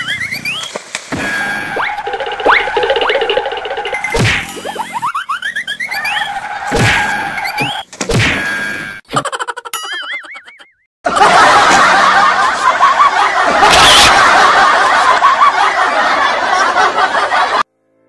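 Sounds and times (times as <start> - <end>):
wavering cartoon sound effect: 1.4 - 7.8
laugh track: 4.8 - 6.7, 9.1 - 17.7.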